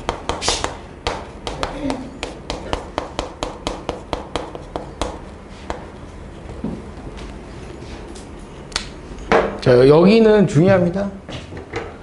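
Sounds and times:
chalk tapping on a chalkboard: 0.0s - 5.9s.

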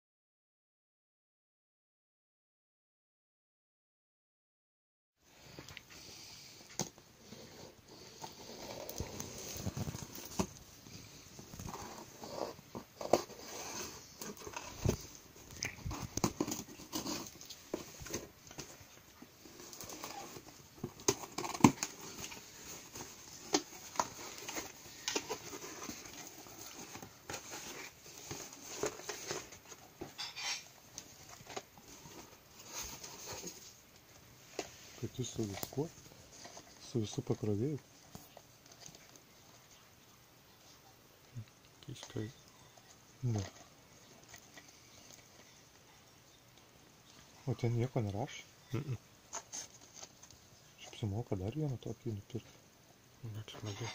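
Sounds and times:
cardboard and tape rustling: 5.4s - 39.9s, 41.4s - 52.5s.

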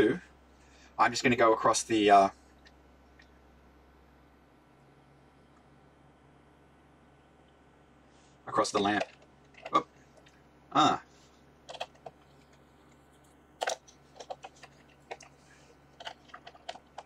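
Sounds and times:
probe clips clicking and tapping: 11.7s - 12.2s.

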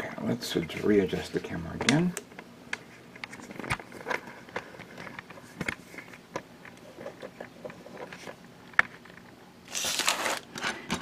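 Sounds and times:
plastic bags crinkling: 9.6s - 10.6s.

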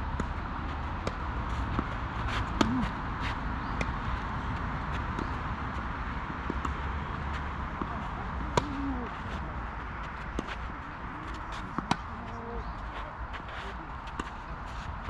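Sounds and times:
tennis ball struck by rackets: 0.2s - 9.4s, 11.2s - 12.2s
footsteps on court: 0.2s - 15.0s.

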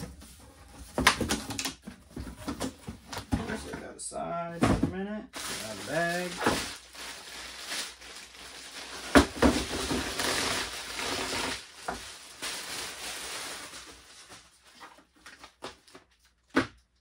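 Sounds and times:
plastic bag crinkling: 5.4s - 15.1s.

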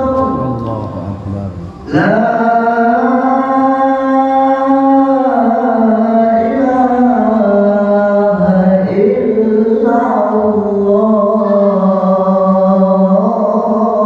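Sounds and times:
man chanting into microphone: 0.0s - 14.0s.

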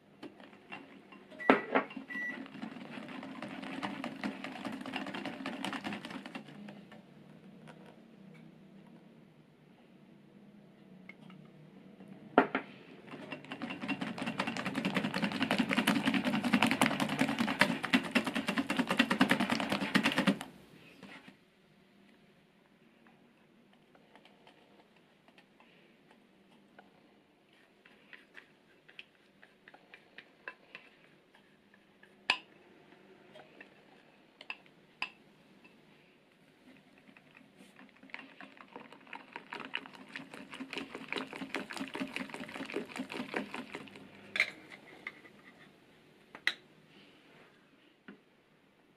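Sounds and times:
whisk rattling in glass bowl: 1.8s - 6.6s, 13.1s - 20.4s, 37.0s - 44.0s.

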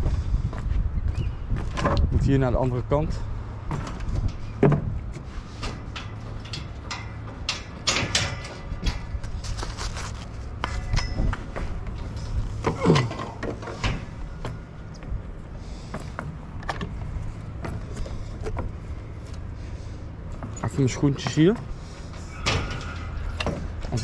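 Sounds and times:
steady low rumble: 0.0s - 12.7s.

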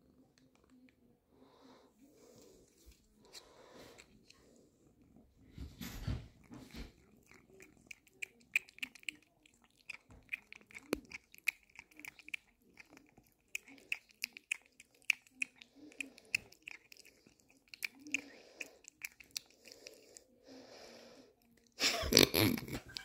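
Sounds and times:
soft breathy sound: 0.0s - 7.6s, 17.9s - 21.6s
cat licking: 0.1s - 23.0s.

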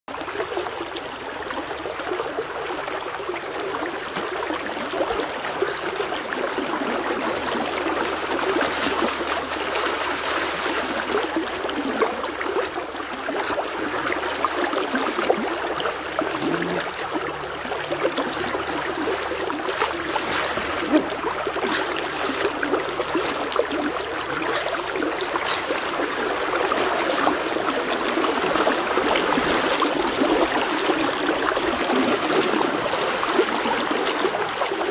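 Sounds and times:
fast-flowing river rushing: 1.6s - 34.9s
person splashing in water: 6.5s - 15.6s.

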